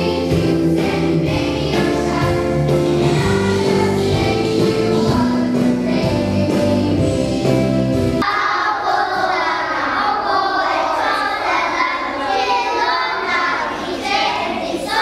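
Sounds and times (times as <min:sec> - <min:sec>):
recorded backing music: 0:00.0 - 0:08.2
children's choir singing: 0:00.0 - 0:15.0.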